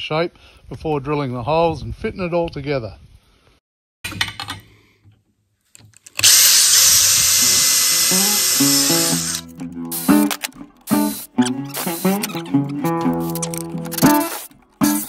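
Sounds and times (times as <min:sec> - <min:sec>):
cordless drill whining through metal: 0:06.1 - 0:10.5.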